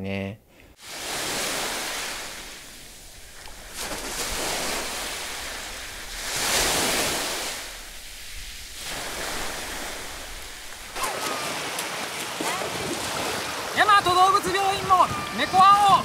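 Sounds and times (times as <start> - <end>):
sea surf washing in: 0.8 - 16.0
swimmer splashing water: 0.8 - 16.0.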